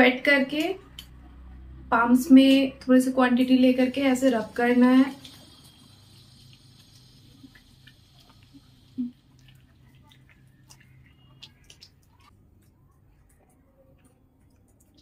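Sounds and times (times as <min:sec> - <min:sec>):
wet squishing of face wash: 0:06.5 - 0:15.0.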